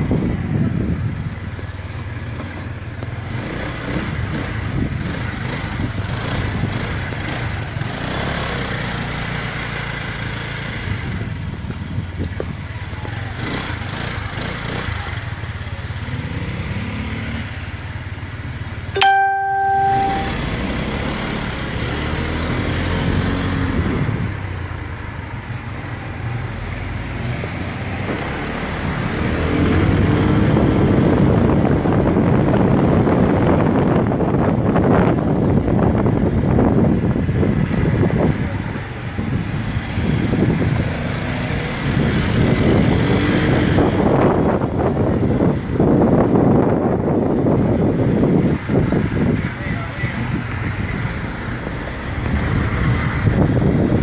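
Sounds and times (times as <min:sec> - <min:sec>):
traffic engines: 0:00.0 - 0:54.0
wind on microphone: 0:27.3 - 0:54.0.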